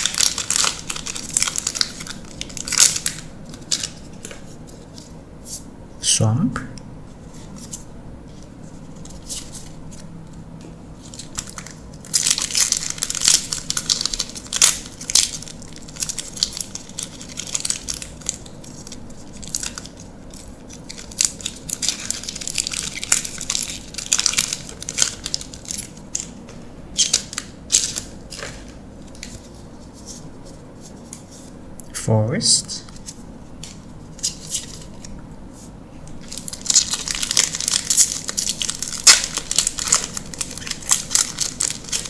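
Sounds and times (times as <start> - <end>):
plastic foil wrapper crackling: 0.0 - 4.3, 11.0 - 26.4, 27.0 - 29.6, 33.6 - 35.1, 36.2 - 42.0.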